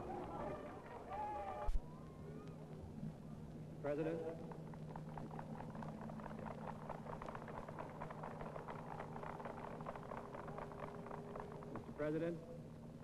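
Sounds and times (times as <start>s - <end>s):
crowd applauding: 0.0s - 1.8s, 4.2s - 12.1s
steady low hum: 1.7s - 13.0s.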